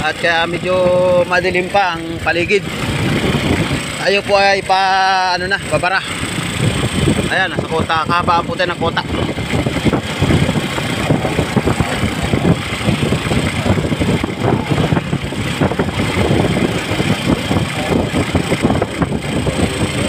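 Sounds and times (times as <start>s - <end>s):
motor vehicle engine and road noise: 0.0s - 20.0s.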